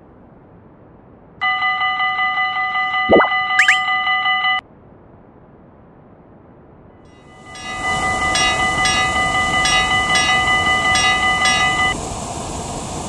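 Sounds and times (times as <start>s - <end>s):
railroad crossing bell: 1.4s - 4.6s, 7.1s - 12.0s.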